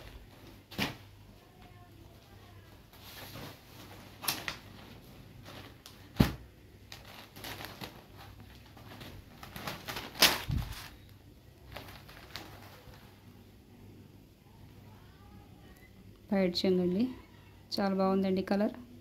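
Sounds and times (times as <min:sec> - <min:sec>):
fabric rustling: 0:02.7 - 0:13.3.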